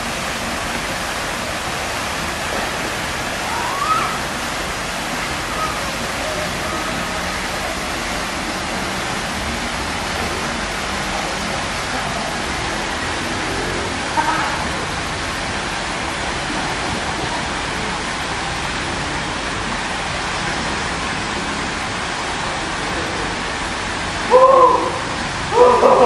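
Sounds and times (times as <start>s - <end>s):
stream water flowing: 0.0s - 26.0s
faint rising call: 3.4s - 4.5s.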